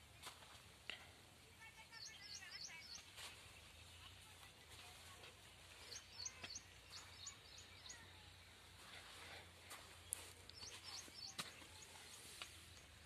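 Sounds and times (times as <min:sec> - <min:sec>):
bird chirping: 0:01.6 - 0:04.4, 0:05.5 - 0:08.6, 0:09.9 - 0:13.0.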